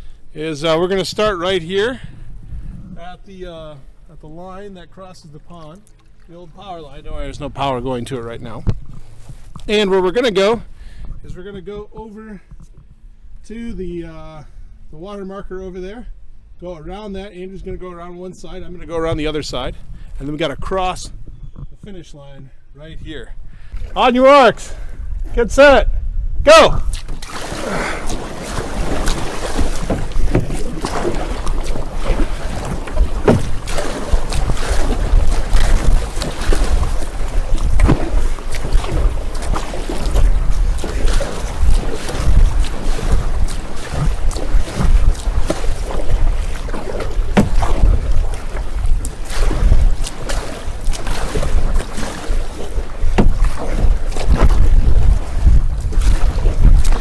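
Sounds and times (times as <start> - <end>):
wind on microphone: 0.0 - 3.8, 18.5 - 22.2, 24.7 - 57.0
paddle splashing in water: 5.3 - 10.5, 26.5 - 57.0
paddle knocking on plastic hull: 28.1 - 57.0.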